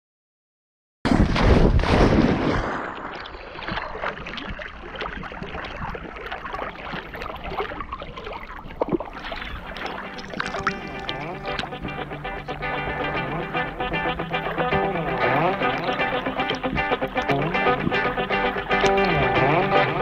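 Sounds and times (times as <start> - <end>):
water splashing: 1.1 - 20.0
music: 9.9 - 20.0.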